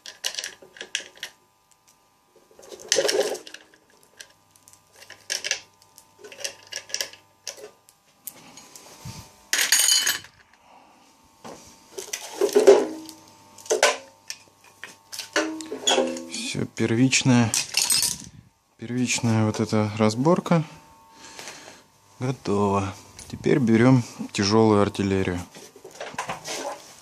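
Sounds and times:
metal bolts and nuts clinking: 15.2s - 16.4s, 17.5s - 18.3s.

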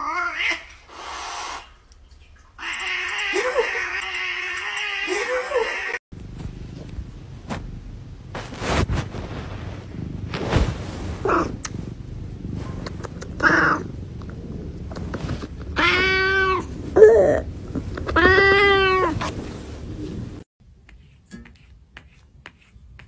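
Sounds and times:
cat meowing: 15.7s - 16.7s.

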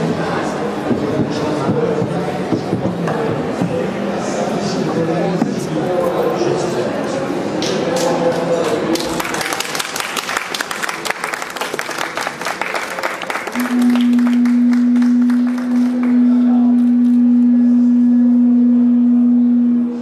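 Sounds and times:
audience applause: 8.9s - 16.2s.

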